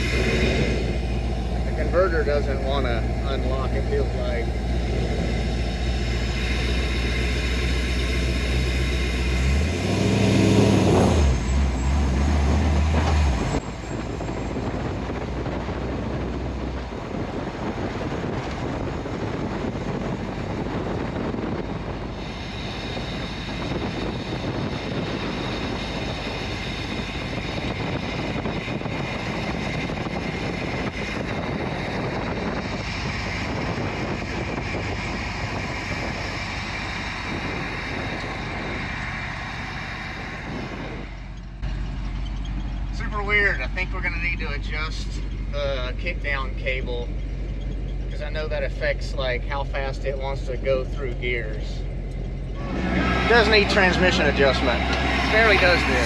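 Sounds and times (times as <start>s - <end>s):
truck engine running: 0.0s - 56.0s
tyre and wind noise: 9.5s - 39.1s.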